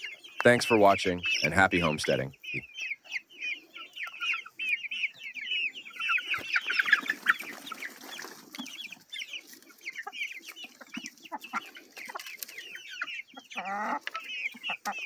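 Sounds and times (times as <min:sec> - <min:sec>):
young chickens cheeping: 0:00.0 - 0:15.0.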